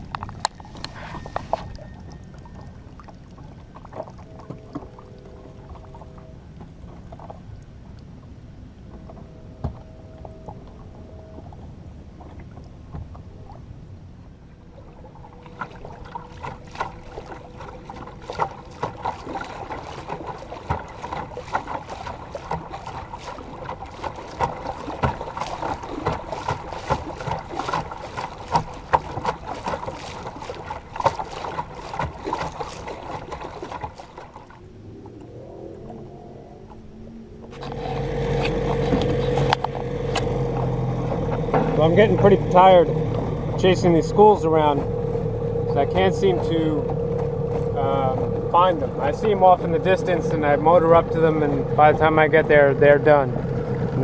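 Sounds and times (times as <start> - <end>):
water slapping against boat hull: 0.0 - 8.0, 12.2 - 13.7, 14.8 - 34.6, 37.4 - 54.0
faint steady motor hum: 0.0 - 54.0.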